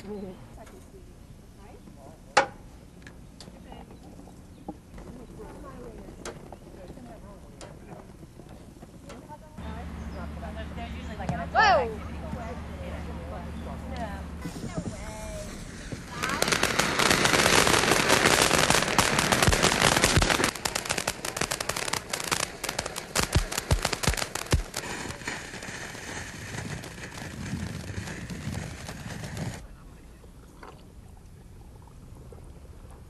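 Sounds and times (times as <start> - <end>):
fireworks cracking and banging: 14.0 - 29.8
hissing crackle: 14.0 - 30.1.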